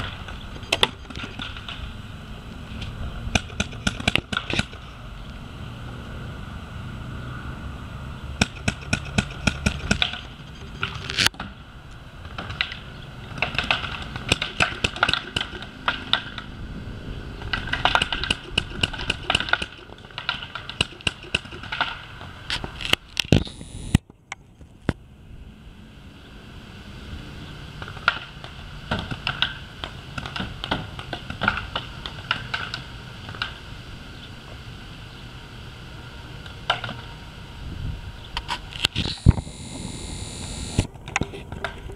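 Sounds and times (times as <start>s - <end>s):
paintball marker firing: 3.3s - 4.8s, 8.4s - 10.4s, 13.4s - 16.4s, 17.6s - 22.0s.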